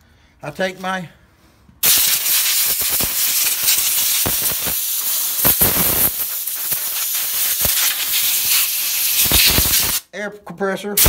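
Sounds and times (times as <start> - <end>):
air blow gun hissing: 1.8 - 10.0.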